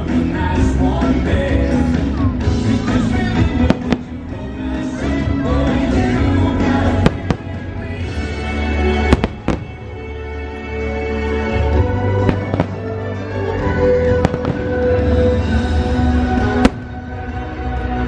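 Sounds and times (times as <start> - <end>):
loud show music: 0.0 - 18.0
fireworks bangs: 3.3 - 4.4, 6.7 - 10.0, 12.2 - 13.2, 14.0 - 15.6, 16.4 - 17.2.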